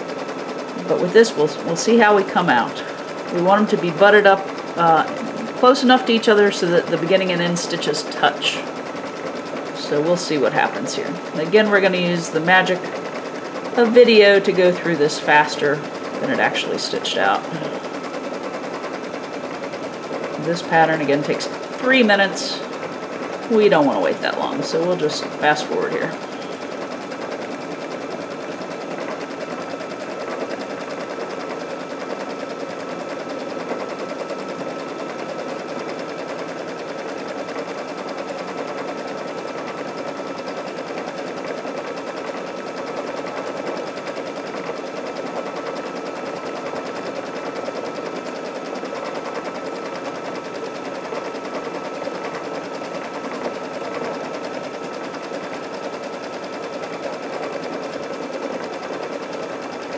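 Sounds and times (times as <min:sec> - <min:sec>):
machine whine: 0:00.0 - 0:52.7
embroidery machine needle clatter: 0:00.0 - 0:59.9.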